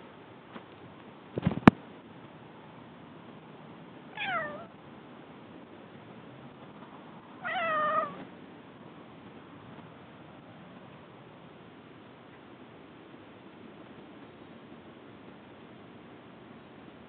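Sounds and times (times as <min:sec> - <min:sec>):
cat meowing: 0:04.2 - 0:04.7, 0:07.4 - 0:08.3.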